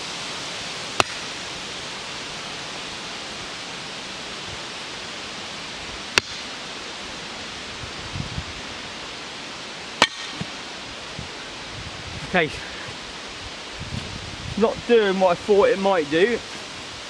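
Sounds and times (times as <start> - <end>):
steady hiss: 0.0 - 17.0
shovel blade striking log: 1.0 - 1.4, 6.2 - 6.5, 10.0 - 10.5.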